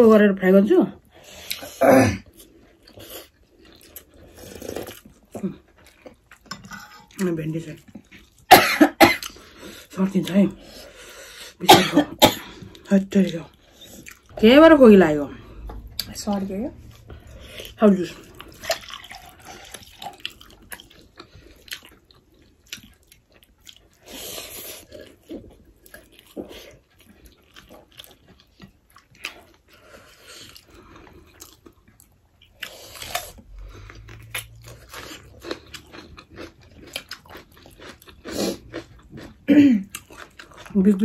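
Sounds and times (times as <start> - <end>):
people chewing food: 1.0 - 41.0.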